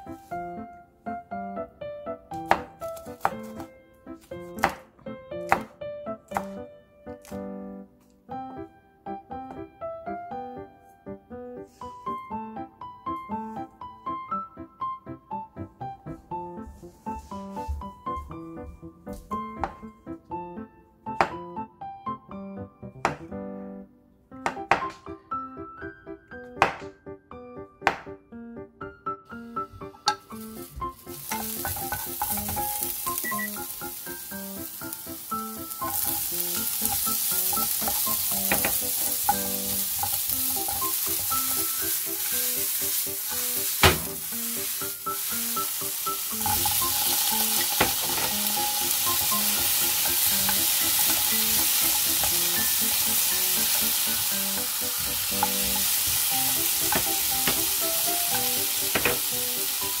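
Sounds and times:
food sizzling in frying pan: 30.1 - 60.0.

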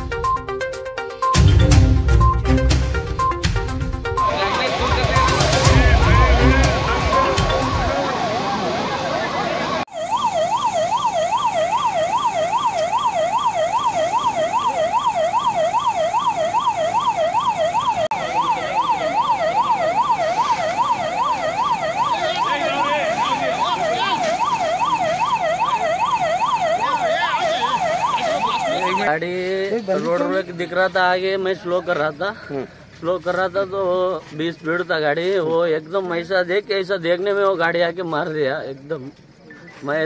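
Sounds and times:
emergency siren yelping: 4.2 - 29.1.

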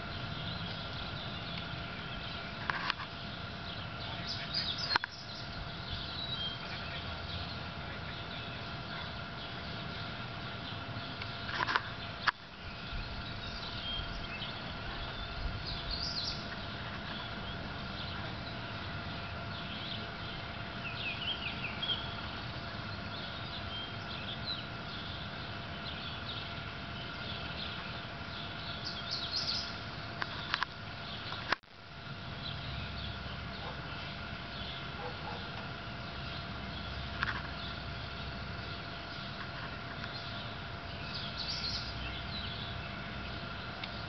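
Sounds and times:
background hum: 0.0 - 44.0
songbirds chirping: 0.0 - 44.0.

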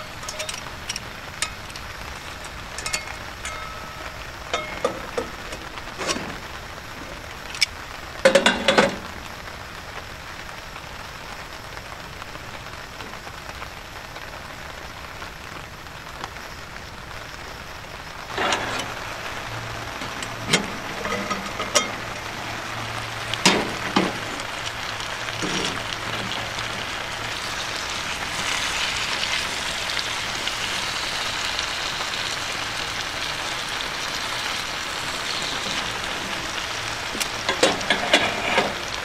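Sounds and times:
food sizzling in oil: 0.0 - 10.2, 16.3 - 39.0
heavy rain hissing: 0.0 - 39.0
metal lid clattering onto pan: 20.5 - 22.0.

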